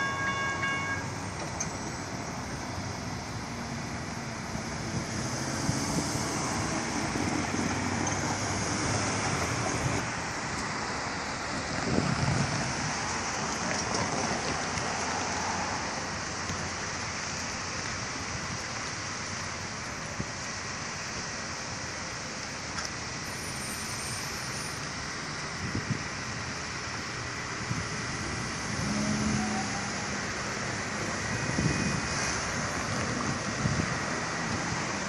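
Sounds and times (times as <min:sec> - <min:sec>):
road traffic tyres and engines: 0:00.0 - 0:35.0
wind on microphone: 0:11.7 - 0:13.1, 0:31.1 - 0:34.7.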